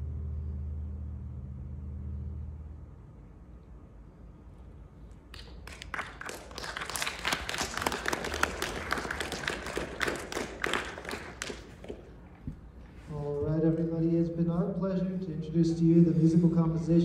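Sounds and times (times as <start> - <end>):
audience applauding: 5.3 - 12.4.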